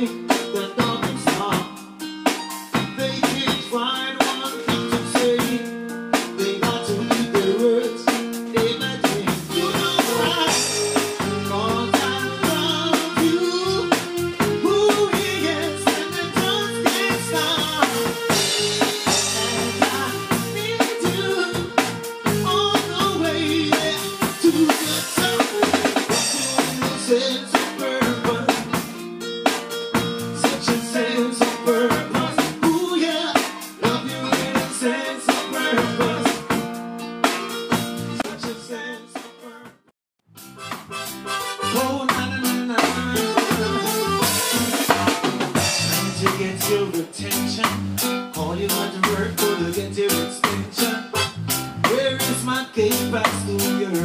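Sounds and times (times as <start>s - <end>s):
electric bass guitar: 0.0s - 1.8s, 2.7s - 38.8s, 39.7s - 54.0s
keyboard: 0.0s - 39.7s, 40.4s - 54.0s
bass drum: 0.8s - 1.6s, 2.8s - 3.7s, 8.6s - 27.2s, 28.0s - 29.0s, 30.0s - 30.9s, 31.9s - 32.9s, 33.8s - 34.8s, 35.8s - 36.7s, 41.8s - 54.0s.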